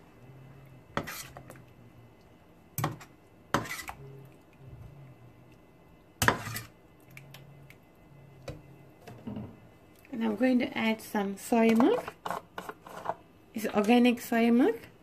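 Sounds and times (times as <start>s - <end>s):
metal spoon stirring thick curry: 1.0s - 1.5s.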